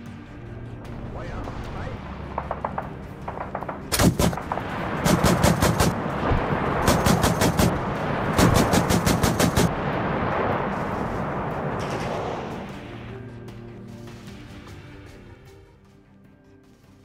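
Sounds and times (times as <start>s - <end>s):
steady rumble: 0.3s - 13.4s
automatic gunfire bursts: 3.9s - 6.0s, 6.8s - 7.8s, 8.4s - 9.7s.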